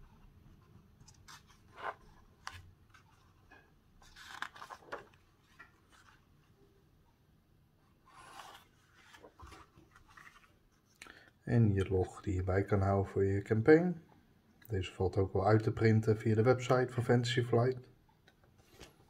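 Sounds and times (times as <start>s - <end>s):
paper pages turning: 0.7s - 3.4s, 4.0s - 6.3s, 8.1s - 10.8s.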